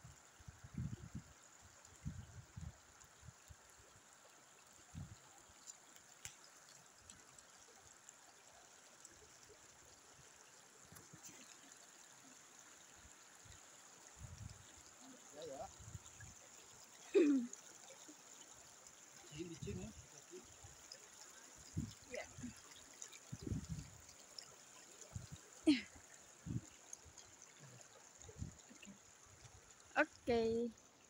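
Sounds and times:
seawater running between rocks: 19.0 - 31.0.

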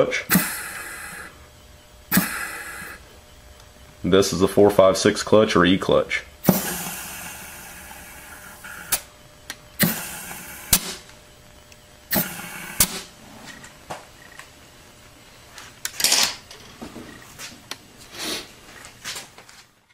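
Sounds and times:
compressed air hissing bursts: 0.3 - 1.4, 2.1 - 3.1, 6.4 - 9.1, 9.8 - 11.1, 12.0 - 13.3, 18.1 - 18.6.

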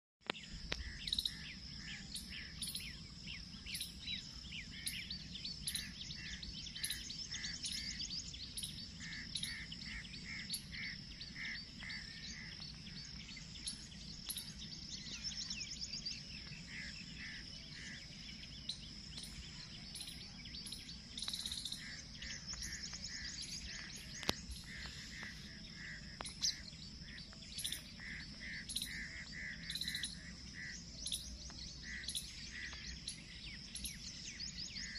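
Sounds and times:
birds chirping: 0.2 - 34.9
high-pitched insect drone: 18.7 - 31.3.

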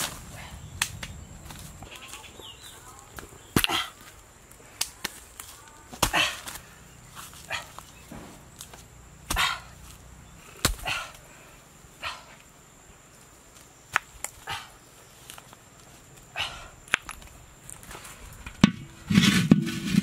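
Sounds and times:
pots knocking on dry leaves: 4.8 - 9.6, 16.9 - 20.0.

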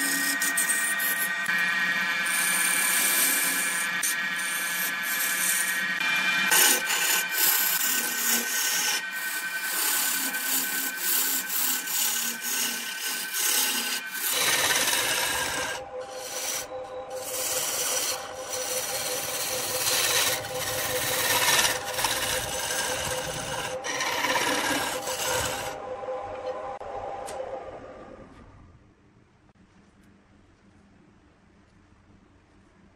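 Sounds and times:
gouge scraping wood on lathe: 0.0 - 25.8.

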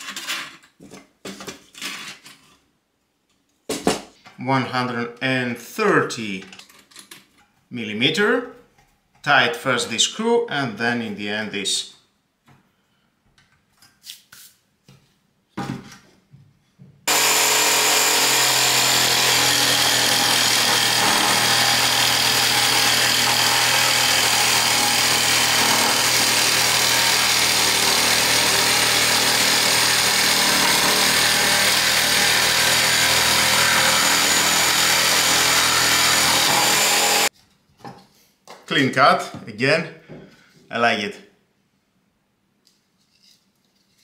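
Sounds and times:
jigsaw cutting chipboard: 17.1 - 37.3.

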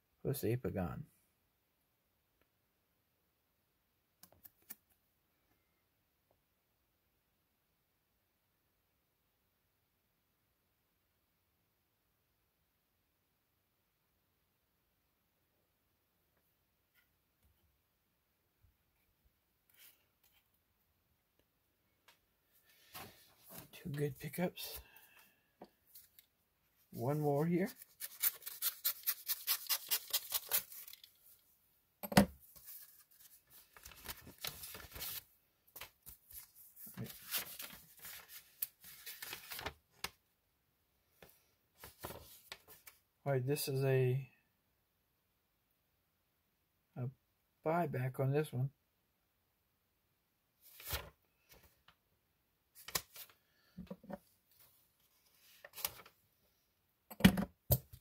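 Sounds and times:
packaging rustling and crinkling: 32.6 - 35.2.

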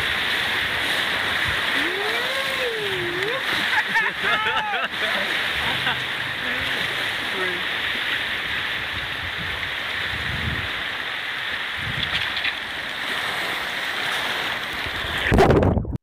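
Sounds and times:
rushing whitewater rapids: 0.0 - 15.4
water splashing: 0.0 - 15.9.

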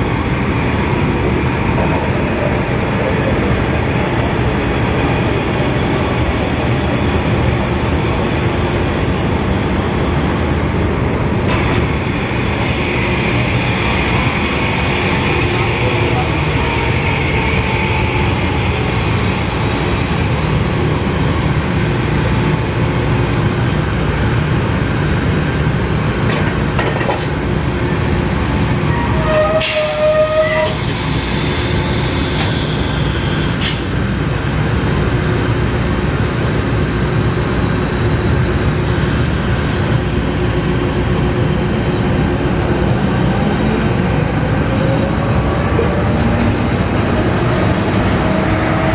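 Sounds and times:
short high squeal: 29.0 - 32.8.

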